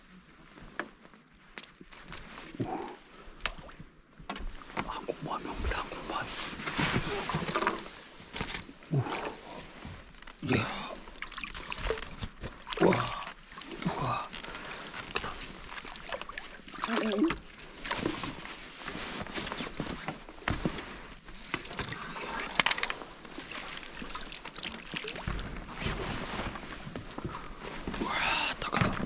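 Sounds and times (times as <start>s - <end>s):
water sloshing and dripping: 5.6s - 27.9s.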